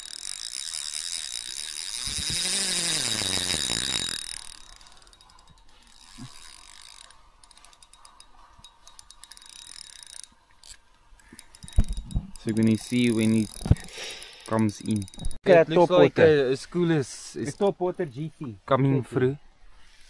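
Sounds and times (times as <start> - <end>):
fishing reel clicking: 0.0 - 15.4.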